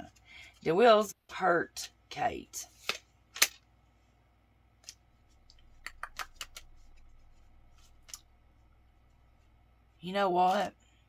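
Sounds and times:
cards clicking on a table: 0:05.7 - 0:06.8.

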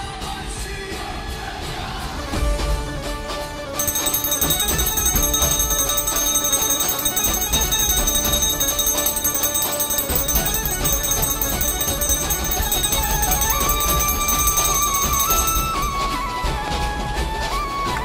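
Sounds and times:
music playing: 0:03.7 - 0:18.0
hand bell ringing: 0:03.8 - 0:16.2.

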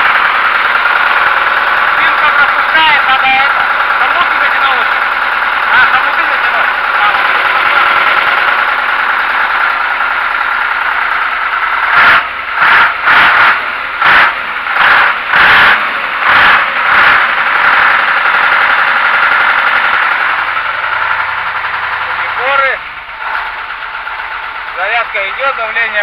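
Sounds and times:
diesel truck engine revving: 0:00.0 - 0:26.0.

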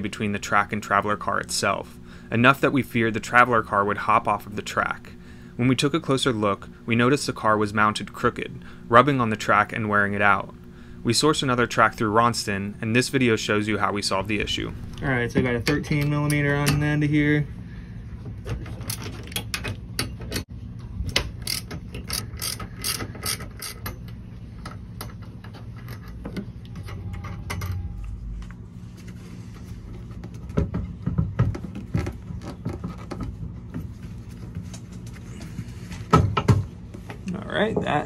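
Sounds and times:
ratchet wrench clicking: 0:21.4 - 0:24.0.

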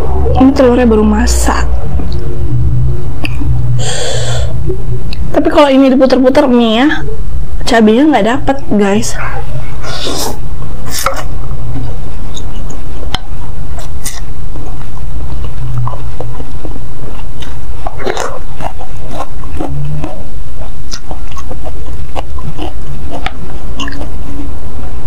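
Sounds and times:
steady low hum: 0:00.0 - 0:25.0
wet mouth clicks: 0:03.2 - 0:03.5, 0:09.8 - 0:24.1
chewing and slurping noodles: 0:09.8 - 0:25.0.

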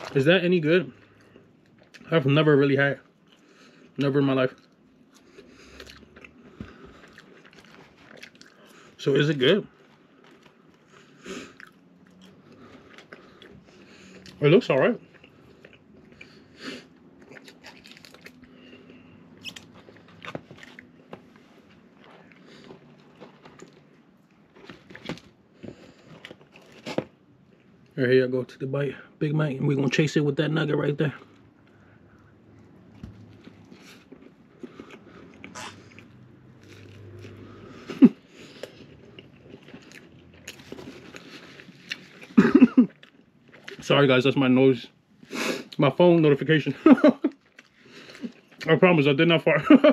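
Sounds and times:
person chewing food: 0:00.9 - 0:02.1, 0:03.0 - 0:09.0, 0:09.7 - 0:14.4, 0:15.0 - 0:27.9, 0:31.2 - 0:43.8, 0:47.3 - 0:48.7.

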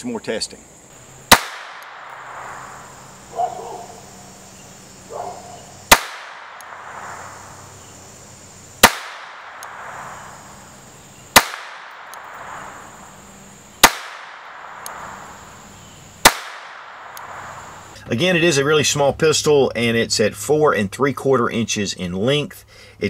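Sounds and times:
pistol shots with echo: 0:01.2 - 0:04.0, 0:05.1 - 0:07.9, 0:08.8 - 0:17.8.

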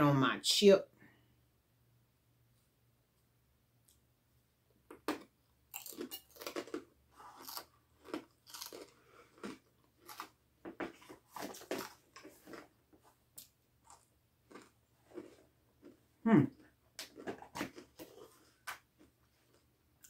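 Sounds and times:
crunching chewing of chip: 0:04.9 - 0:20.0.

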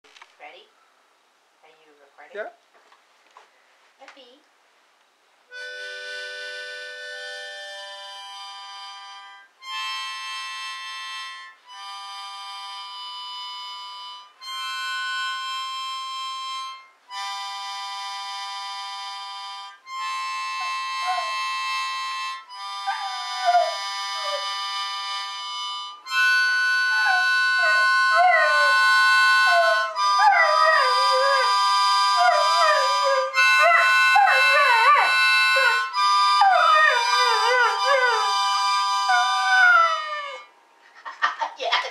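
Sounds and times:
harmonica chords: 0:05.5 - 0:40.6
dog howling: 0:20.6 - 0:21.4, 0:22.8 - 0:24.5, 0:26.9 - 0:40.5.

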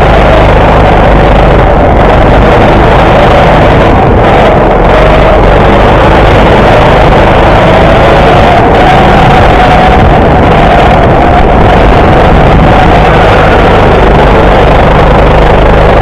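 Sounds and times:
go-kart engine running hard: 0:00.0 - 0:16.0.

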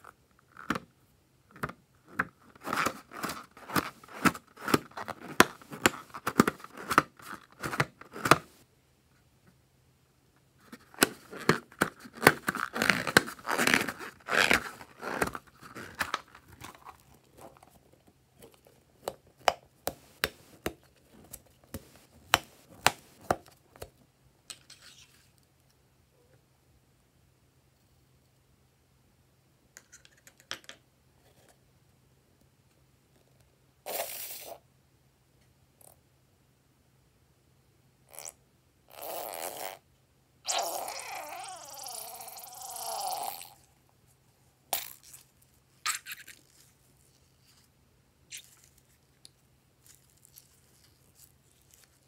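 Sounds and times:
hands kneading rubber balloon: 0:02.1 - 0:08.6, 0:10.6 - 0:23.9.

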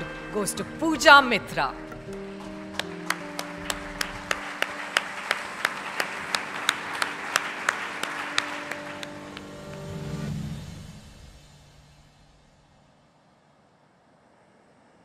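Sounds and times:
held music notes: 0:00.0 - 0:10.3
audience applauding: 0:02.0 - 0:10.3.

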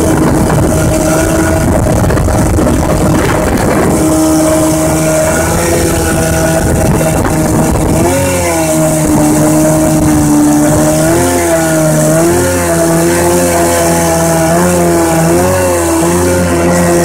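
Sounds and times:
outboard motor running: 0:00.0 - 0:17.0
water rushing past hull: 0:00.0 - 0:17.0.

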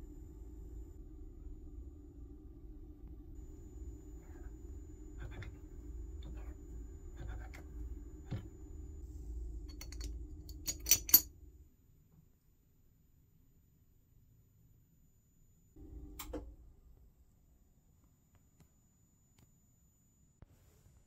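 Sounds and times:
steady low hum: 0:00.0 - 0:12.1, 0:14.9 - 0:18.9
hands handling small metal model: 0:09.7 - 0:11.3.

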